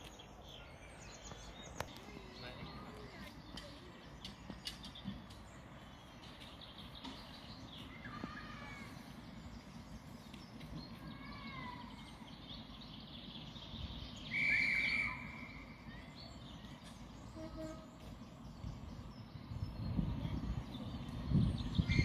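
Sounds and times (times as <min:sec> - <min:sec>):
small birds singing: 0:00.0 - 0:22.0.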